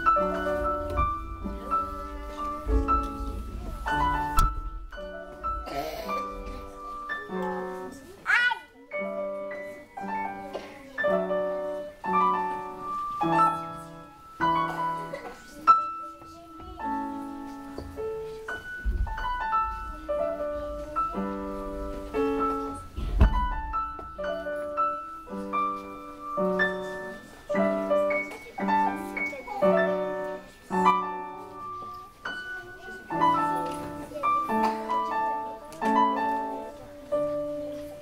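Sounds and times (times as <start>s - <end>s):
piano chords: 0.0s - 38.0s
low thumps: 0.1s - 6.8s, 18.8s - 24.2s.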